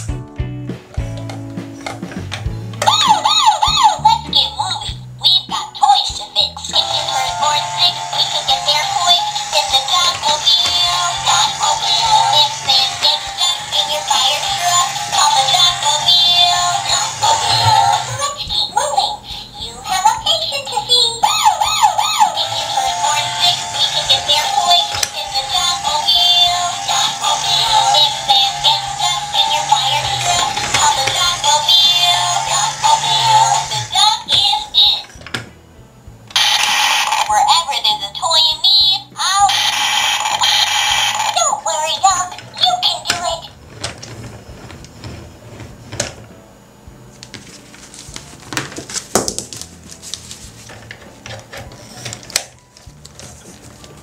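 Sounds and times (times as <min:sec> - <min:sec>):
tinny electronic toy tune: 0:05.4 - 0:19.0, 0:36.3 - 0:38.2, 0:39.2 - 0:43.4.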